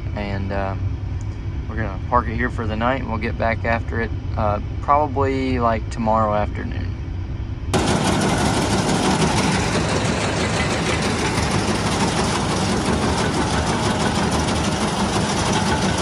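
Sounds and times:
tractor engine running: 7.7 - 16.0
farm machinery rattling: 7.8 - 16.0.

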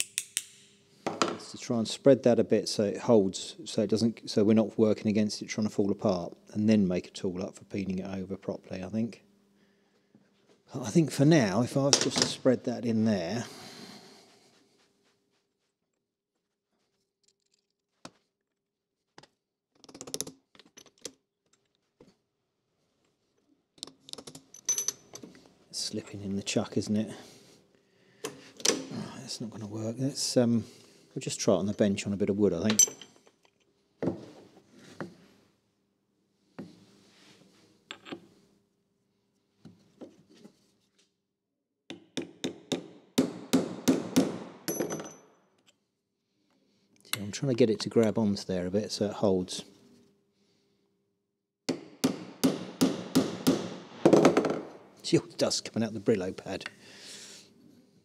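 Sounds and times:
faint steady hum: 0.0 - 15.7, 22.9 - 40.7.

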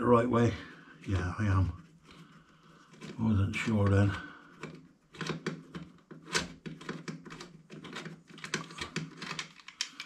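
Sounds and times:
hand tool clicking and ticking: 9.3 - 10.0.

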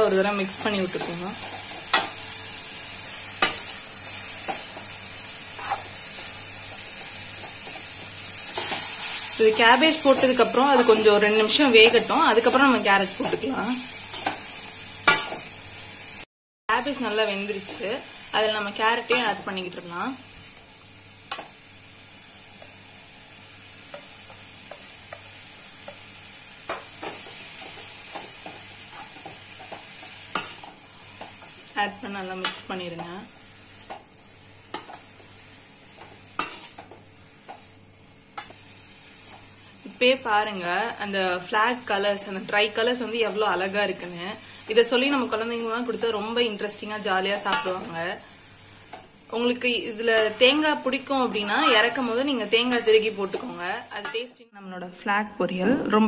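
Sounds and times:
vegetables sizzling in a pan: 0.0 - 54.4
ladle scraping against pan: 15.1 - 15.4.

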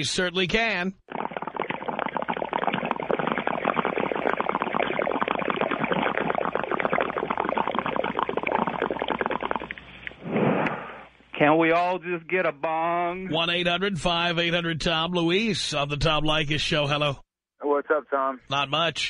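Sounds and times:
water bubbling through a bong: 1.0 - 11.1.

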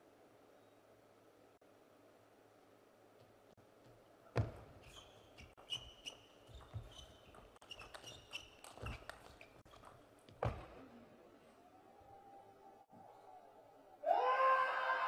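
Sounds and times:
shoe squeaks on court floor: 4.4 - 10.6.

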